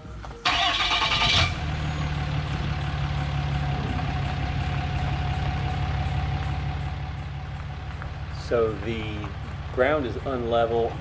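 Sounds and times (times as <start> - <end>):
truck engine idling: 0.4 - 11.0
truck engine starting: 0.4 - 11.0.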